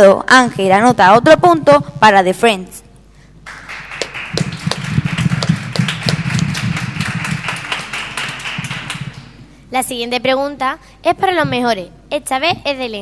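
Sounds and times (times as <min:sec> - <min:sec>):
audience applause: 0:03.4 - 0:09.4.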